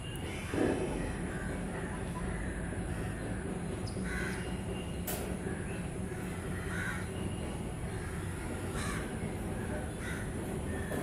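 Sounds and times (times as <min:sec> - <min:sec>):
bird calling: 0:00.0 - 0:11.0.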